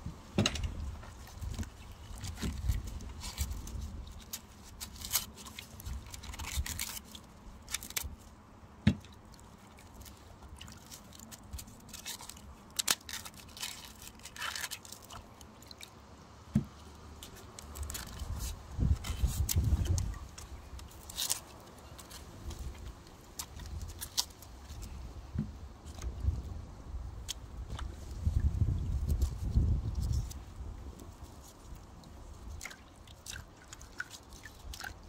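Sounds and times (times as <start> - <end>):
onion skins crackling and tearing: 1.2 - 8.4, 9.0 - 15.9, 17.0 - 26.4, 28.9 - 35.0
water sloshing: 31.2 - 35.0.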